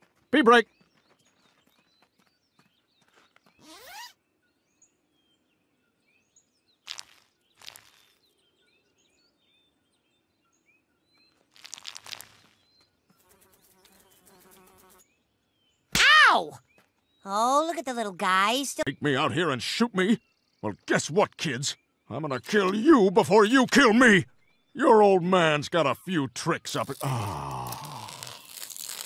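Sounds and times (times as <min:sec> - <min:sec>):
faint insect chirps: 0:06.9 - 0:08.2, 0:11.5 - 0:15.1.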